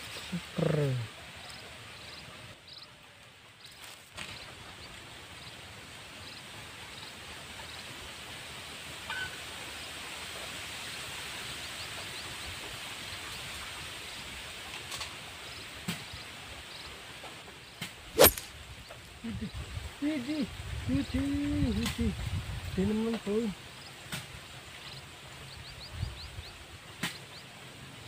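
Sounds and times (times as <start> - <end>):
steady outdoor hiss: 0.0 - 28.0
sharp loud click: 18.2 - 18.5.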